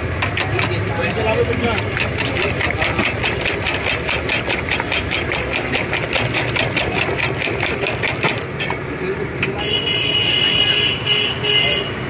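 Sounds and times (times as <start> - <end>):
metal utensil clicking on griddle: 0.0 - 8.8
street traffic hum: 0.0 - 12.0.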